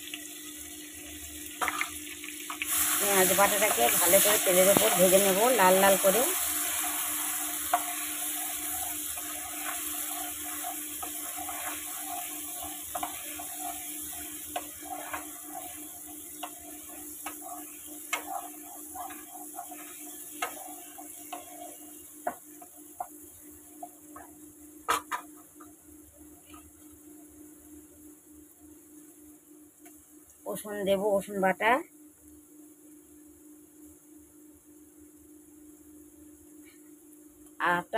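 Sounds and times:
onion paste sizzling in oil: 0.0 - 37.9
wooden spatula scraping pan: 7.6 - 23.1.

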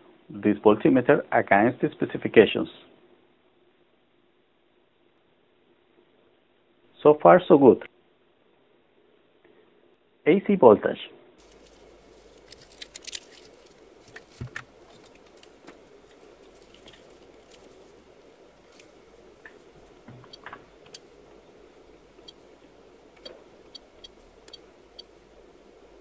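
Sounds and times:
faint handling clicks: 18.6 - 21.2
keypad buttons clicking: 23.2 - 25.2.

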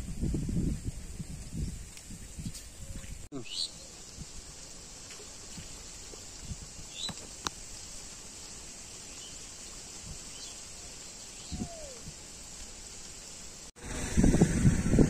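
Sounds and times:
steady hiss: 0.0 - 15.0
faint bird chirps: 6.9 - 7.2.

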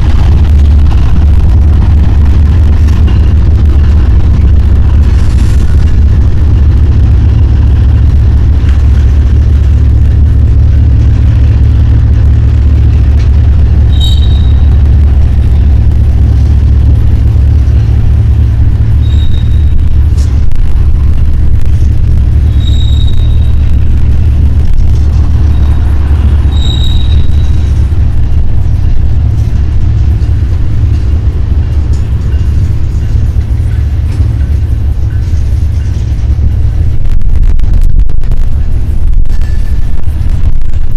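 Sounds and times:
freight train rumbling past: 0.0 - 40.9
train wheel squeals: 13.8 - 15.0, 18.9 - 20.4, 22.4 - 23.8, 25.2 - 28.0.

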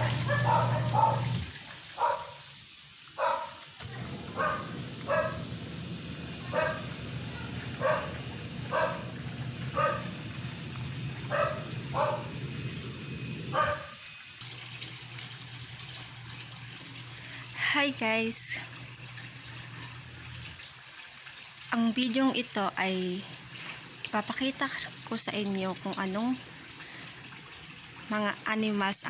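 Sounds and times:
dog barking: 0.0 - 1.4, 2.0 - 2.4, 3.2 - 5.6, 6.4 - 10.2, 11.2 - 12.4, 13.5 - 14.0
running water: 0.0 - 29.0.

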